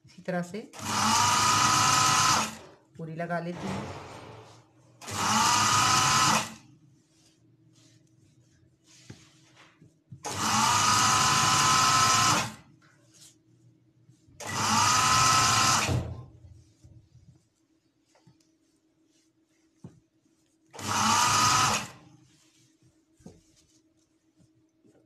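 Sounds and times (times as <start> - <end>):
sewing machine stitching: 0.8 - 2.8, 3.6 - 6.6, 10.2 - 12.6, 14.4 - 16.0, 20.8 - 22.0.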